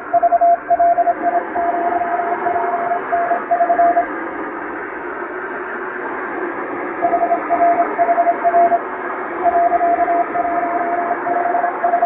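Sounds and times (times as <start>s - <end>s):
morse code beeping: 0.0s - 4.1s, 7.0s - 8.8s, 9.4s - 12.0s
radio static hiss: 0.0s - 12.0s.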